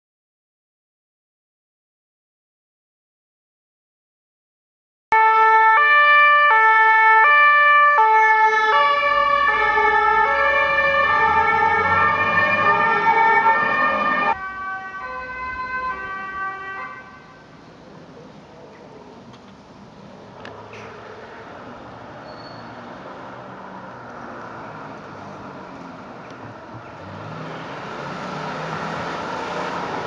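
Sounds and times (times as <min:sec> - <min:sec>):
two-tone siren: 0:05.1 - 0:17.4
street noise: 0:05.1 - 0:30.0
vehicle engine noise: 0:08.4 - 0:16.6, 0:17.2 - 0:30.0.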